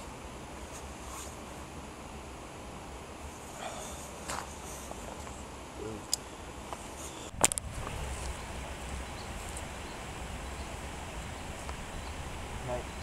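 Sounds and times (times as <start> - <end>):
wind rumble on microphone: 7.3 - 13.0.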